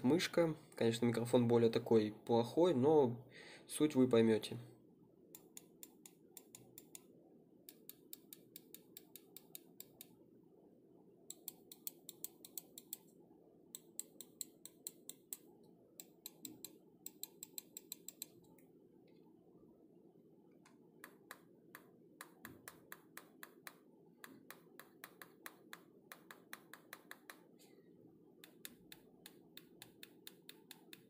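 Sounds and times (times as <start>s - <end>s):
mouse buttons clicking: 13.8s - 18.4s.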